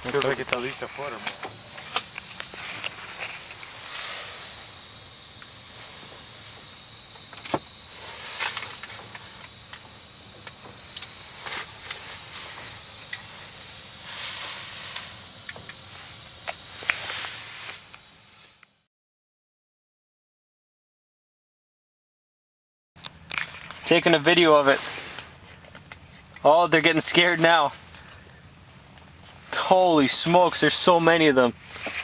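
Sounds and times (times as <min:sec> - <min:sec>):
propane heater hissing: 0:00.0 - 0:18.9, 0:23.7 - 0:32.0
thin high whine: 0:00.0 - 0:18.9.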